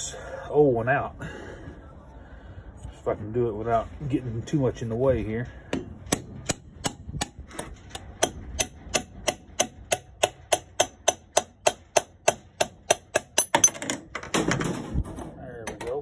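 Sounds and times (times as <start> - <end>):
hammer striking metal punch: 5.7 - 13.8.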